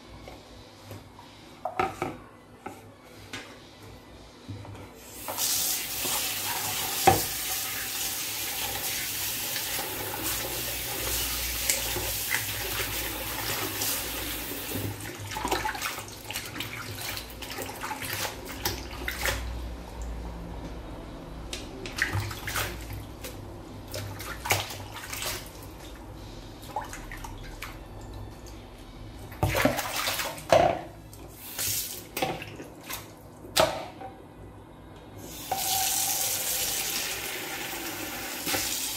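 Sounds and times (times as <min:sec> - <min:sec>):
tap water running into sink: 0:05.2 - 0:17.6, 0:35.3 - 0:38.9
splashes and knocks: 0:21.9 - 0:25.6, 0:29.4 - 0:30.9.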